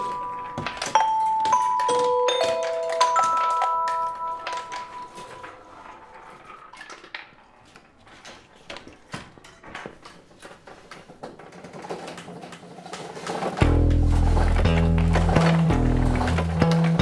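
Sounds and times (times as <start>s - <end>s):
background music with chime notes: 0.0s - 5.6s
faint irregular clicking and rattling: 0.5s - 14.4s.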